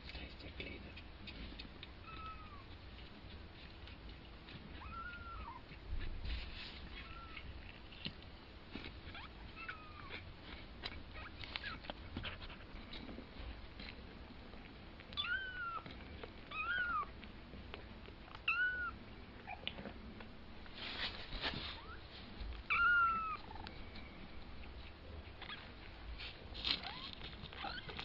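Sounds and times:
faint clicks and rustles: 0:00.0 - 0:28.0
kittens mewing: 0:04.7 - 0:05.7, 0:22.7 - 0:23.7.

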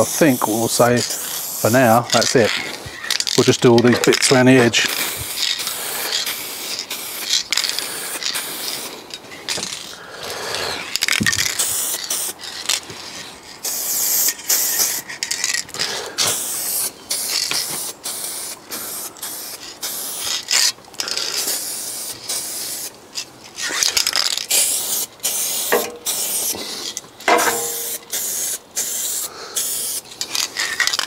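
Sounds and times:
aerosol spray can hissing: 0:00.0 - 0:09.0, 0:10.7 - 0:12.4, 0:13.6 - 0:15.0, 0:16.2 - 0:23.0, 0:23.7 - 0:30.0.

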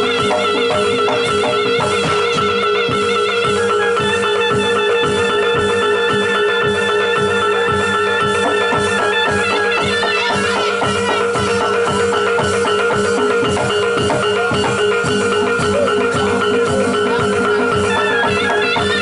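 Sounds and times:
drums beating steady rhythm: 0:00.0 - 0:19.0.

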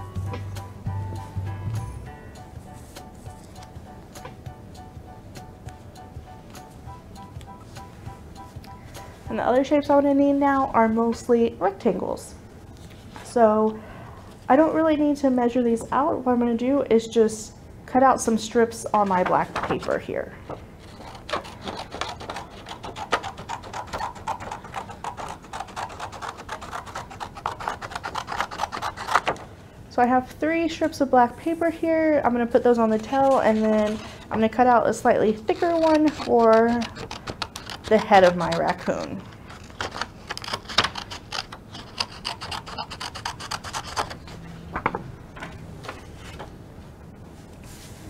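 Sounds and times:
scissors cutting paper: 0:19.0 - 0:29.4, 0:32.5 - 0:44.5.

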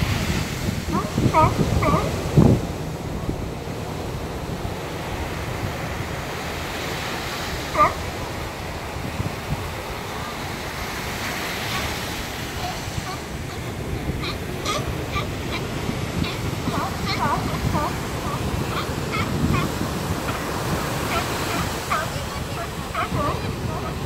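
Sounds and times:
surf washing onto beach: 0:00.0 - 0:24.0
wind buffeting microphone: 0:00.0 - 0:24.0
sea lion barking: 0:00.1 - 0:04.0, 0:04.8 - 0:24.0.

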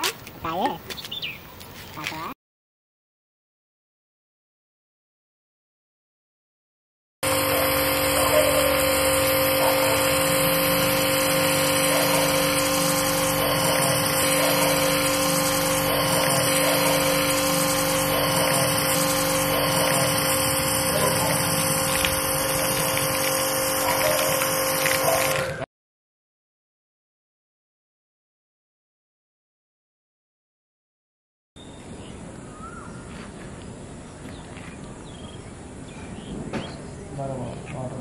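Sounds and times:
spray hissing: 0:07.2 - 0:25.4
pressure washer motor and pump: 0:07.2 - 0:25.7.

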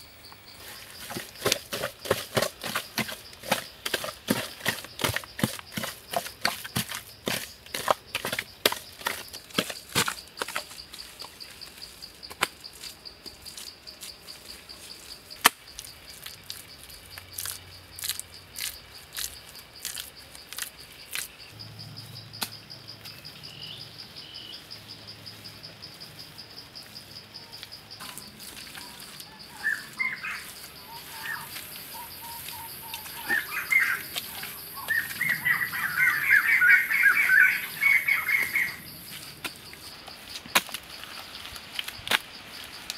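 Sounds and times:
high insect drone: 0:00.0 - 0:42.9
birds chirping: 0:27.3 - 0:40.0.

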